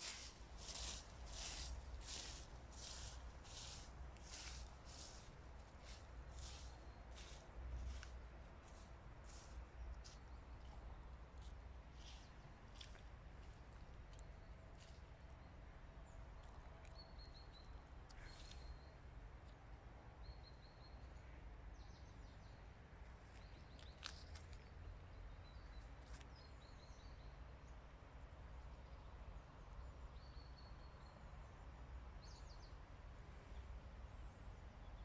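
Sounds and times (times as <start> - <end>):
small birds chirping: 0.0 - 19.6, 23.2 - 27.3.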